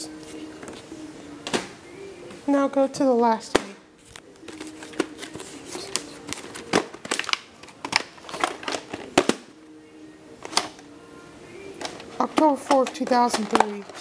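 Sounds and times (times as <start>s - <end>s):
plastic cases clicking: 4.4s - 9.4s, 10.4s - 10.8s, 11.8s - 14.0s.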